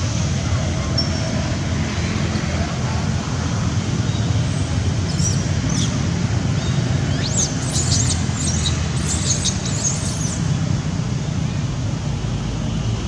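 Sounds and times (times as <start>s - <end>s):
baby monkey squeaking: 7.1s - 10.4s.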